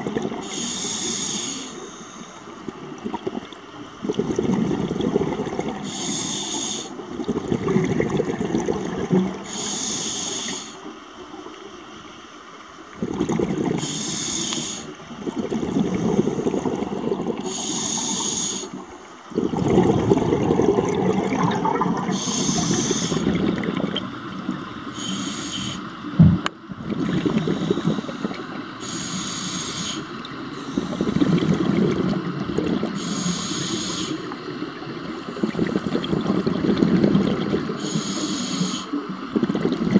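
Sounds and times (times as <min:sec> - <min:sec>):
exhaled bubbles rumbling: 0:00.0 - 0:00.4, 0:02.6 - 0:05.8, 0:07.1 - 0:09.4, 0:12.9 - 0:13.9, 0:15.0 - 0:17.5, 0:18.8 - 0:24.8, 0:26.0 - 0:28.8, 0:30.2 - 0:33.0, 0:34.6 - 0:37.8, 0:39.1 - 0:39.9
regulator inhale hiss: 0:00.4 - 0:02.6, 0:05.8 - 0:07.0, 0:09.4 - 0:10.9, 0:13.8 - 0:15.0, 0:17.4 - 0:19.3, 0:22.1 - 0:23.3, 0:24.9 - 0:26.0, 0:27.4 - 0:31.3, 0:33.0 - 0:36.1, 0:37.8 - 0:39.1.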